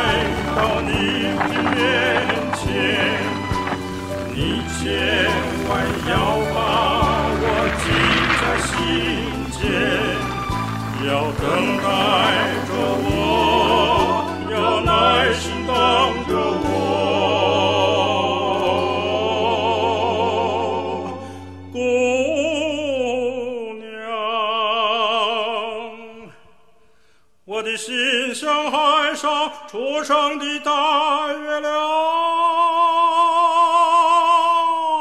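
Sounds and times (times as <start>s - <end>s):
orchestral accompaniment: 0.0s - 19.3s
person singing operatically: 0.0s - 26.3s.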